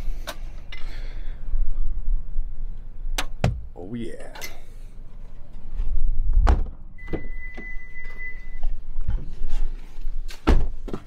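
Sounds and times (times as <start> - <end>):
high electronic beep: 7.0 - 8.7.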